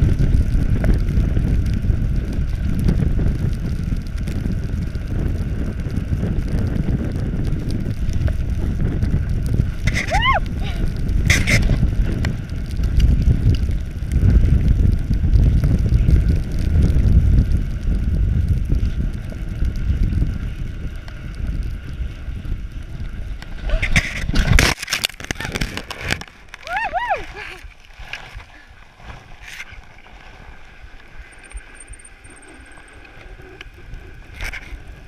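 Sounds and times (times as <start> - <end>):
bike rumbling on packed snow: 0.0 - 35.0
wind buffeting microphone: 0.0 - 35.0.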